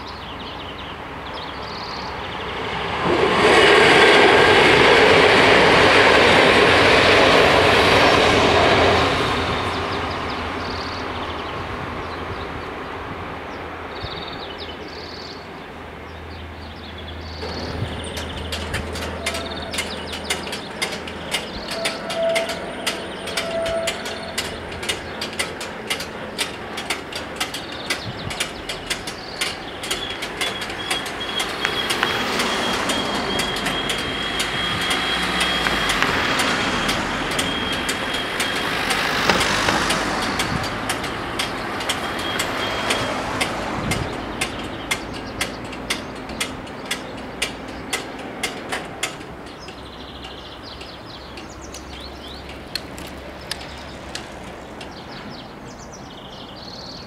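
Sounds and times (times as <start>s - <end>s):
rapid mechanical clicking: 17.4s - 55.0s.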